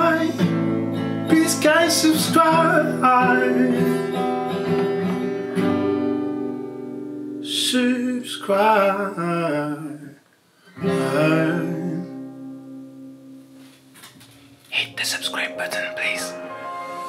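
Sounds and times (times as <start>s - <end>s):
man singing: 0.0s - 0.5s, 1.3s - 4.1s, 7.5s - 10.2s, 10.8s - 12.2s
strummed acoustic guitar: 0.0s - 10.0s, 10.7s - 17.0s.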